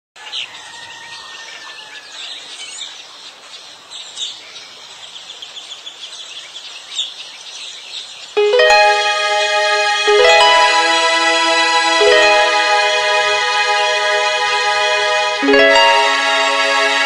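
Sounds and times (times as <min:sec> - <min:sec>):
high chirps and trills: 0:08.4 - 0:17.0.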